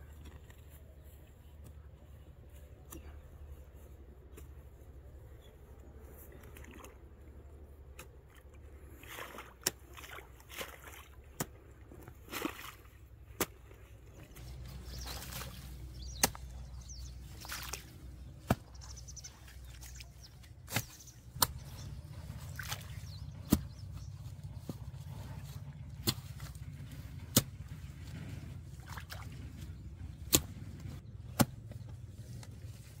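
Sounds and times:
muddy water splashing: 0:06.3 - 0:33.0
hoe chopping into wet mud: 0:15.0 - 0:16.6, 0:17.4 - 0:19.0, 0:20.6 - 0:23.9, 0:25.9 - 0:26.6, 0:27.2 - 0:27.8, 0:30.2 - 0:31.8.

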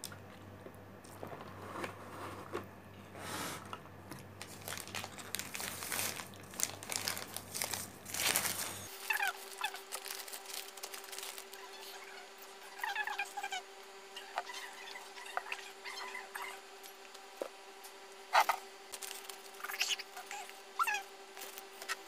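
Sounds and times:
paper wrapper crinkling: 0:04.4 - 0:12.2, 0:18.4 - 0:20.5.

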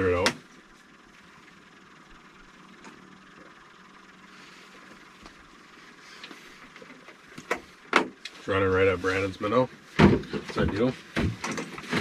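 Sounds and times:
low hum: 0:00.0 - 0:12.0
sharp clicks and knocks: 0:10.0 - 0:12.0.

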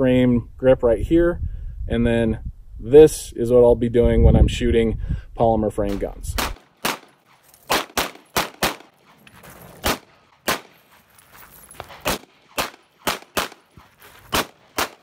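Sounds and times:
pistol shots: 0:05.9 - 0:09.0, 0:09.8 - 0:10.8, 0:12.0 - 0:15.0.

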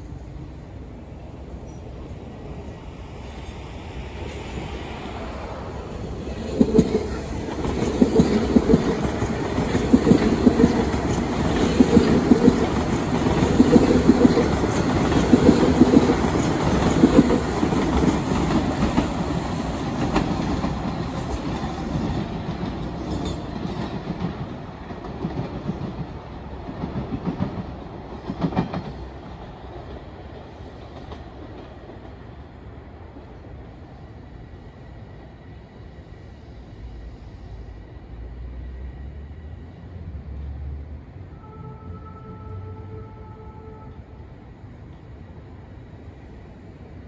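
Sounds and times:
train wheels clattering over rails: 0:06.2 - 0:32.2.

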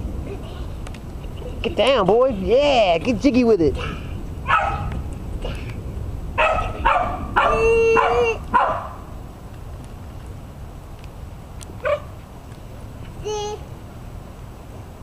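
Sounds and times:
small dog barking and yipping: 0:04.4 - 0:04.9, 0:06.4 - 0:09.0, 0:11.8 - 0:12.1.

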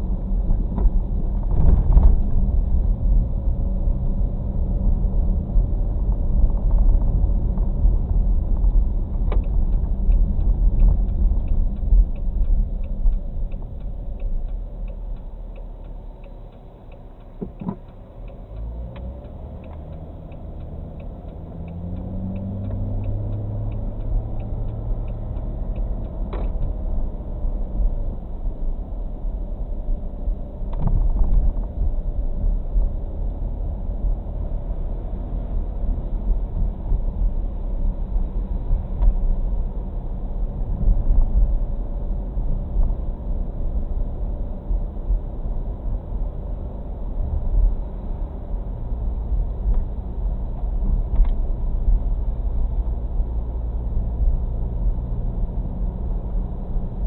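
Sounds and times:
car engine and road rumble: 0:00.0 - 0:57.0
turn signal clicking: 0:08.6 - 0:31.8, 0:47.3 - 0:57.0.

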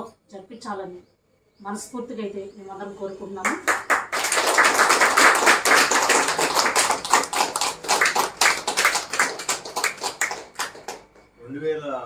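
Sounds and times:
group clapping: 0:03.4 - 0:11.3.

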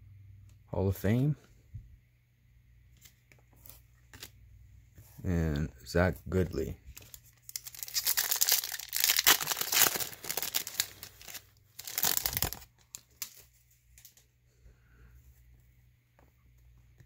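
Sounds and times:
soft rustling of cards: 0:02.8 - 0:14.4
foil wrapper crinkling and tearing: 0:06.9 - 0:14.2.

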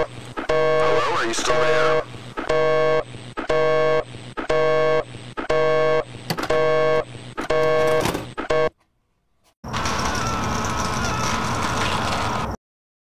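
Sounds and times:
telephone busy signal: 0:00.0 - 0:01.2, 0:01.8 - 0:08.7.

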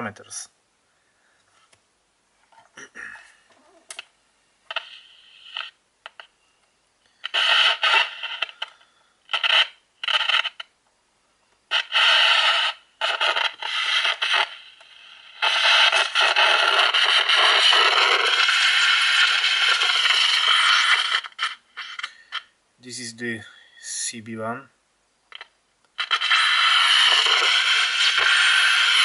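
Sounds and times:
walkie-talkie radio static hiss: 0:04.7 - 0:06.3, 0:07.2 - 0:10.7, 0:11.7 - 0:23.6, 0:25.3 - 0:29.0.

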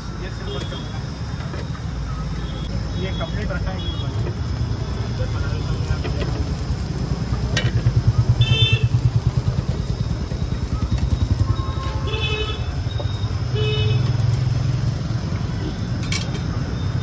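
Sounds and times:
motorcycle engine throbbing: 0:04.3 - 0:17.0.

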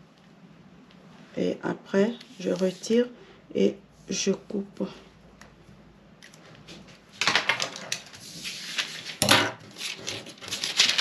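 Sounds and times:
paper rustling: 0:02.2 - 0:03.1, 0:06.2 - 0:11.0.

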